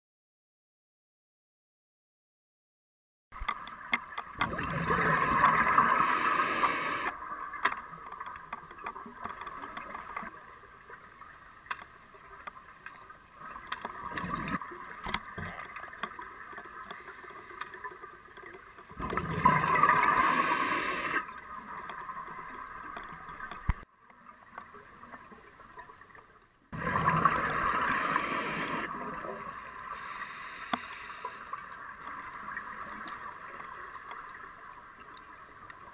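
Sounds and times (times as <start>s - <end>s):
underwater exhaled bubbles: 4.4s - 7.6s, 14.0s - 16.0s, 18.8s - 23.8s, 26.8s - 34.1s
regulator hiss: 27.5s - 29.1s, 29.9s - 31.6s.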